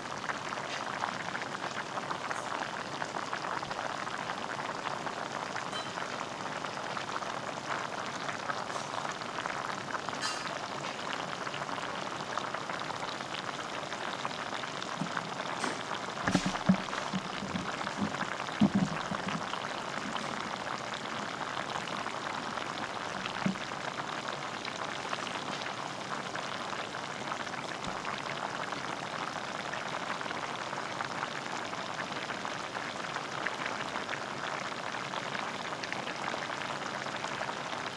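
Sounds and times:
sauce bubbling in a pot: 0.0 - 37.9
dull knocks: 16.3 - 19.4.

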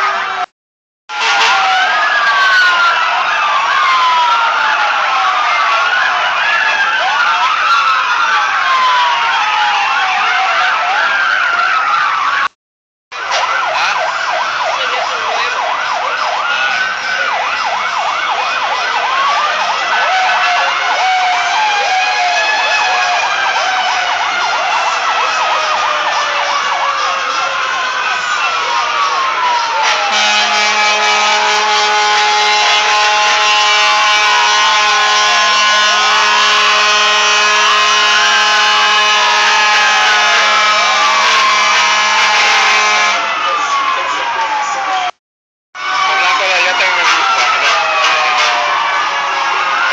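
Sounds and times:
sirens yelping and wailing: 0.0 - 0.5, 1.1 - 45.2, 45.8 - 49.9
long horn blast: 29.8 - 43.3.

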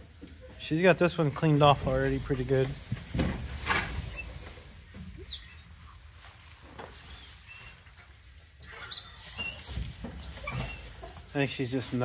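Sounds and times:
puppy squeaking: 5.2 - 5.7, 8.6 - 12.0.

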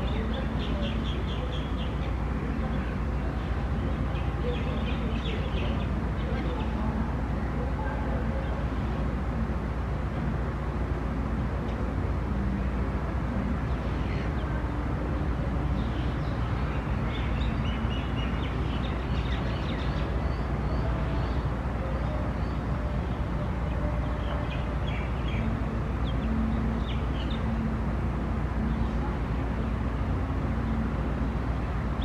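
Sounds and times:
small birds chirping: 0.0 - 7.1, 15.7 - 27.7.

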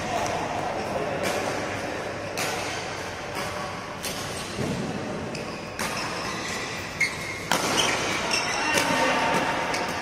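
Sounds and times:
racket hitting shuttlecock: 0.0 - 10.0
shoe squeak on court floor: 5.3 - 9.1.

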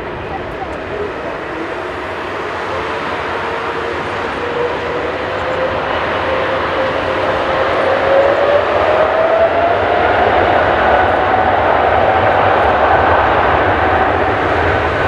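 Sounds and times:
jet engines roaring and whining: 0.0 - 15.0.

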